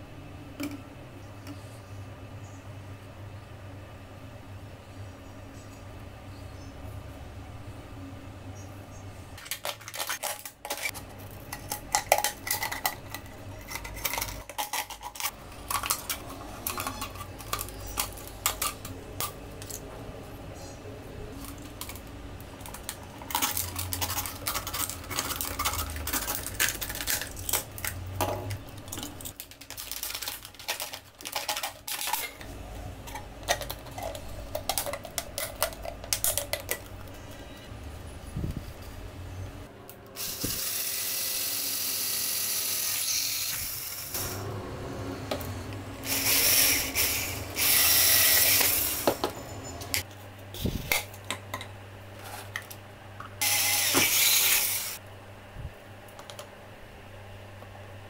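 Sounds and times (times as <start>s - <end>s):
plastic bottle crackling and clicking: 21.4s - 32.4s, 33.1s - 37.2s.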